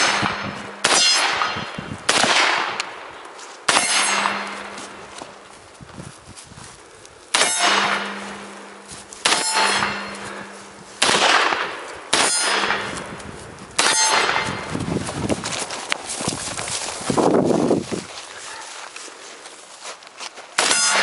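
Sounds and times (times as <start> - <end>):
steel target plate ringing: 0.0 - 1.8, 3.7 - 5.2, 7.3 - 10.9, 11.5 - 13.1, 13.8 - 14.7, 20.6 - 21.0
rifle shots: 0.0 - 3.1, 3.7 - 5.1, 7.3 - 13.1, 13.8 - 14.7, 20.6 - 21.0
low hum: 2.8 - 17.9.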